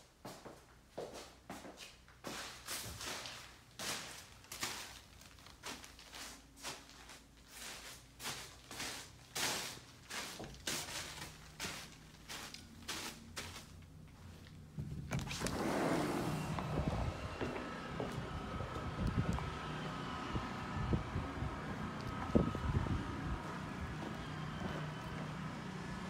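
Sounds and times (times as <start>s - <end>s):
footsteps walking: 0.2s - 25.9s
outdoor wind noise: 2.2s - 26.0s.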